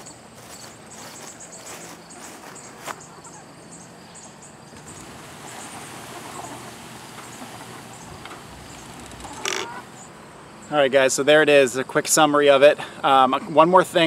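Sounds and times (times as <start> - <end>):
electric motor hum: 4.8 - 10.2
hens clucking: 4.8 - 10.3.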